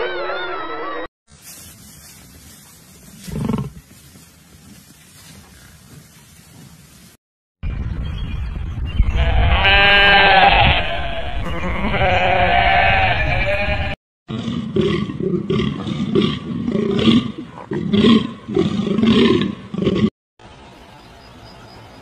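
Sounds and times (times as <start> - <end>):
goat bleating: 9.2 - 14.0.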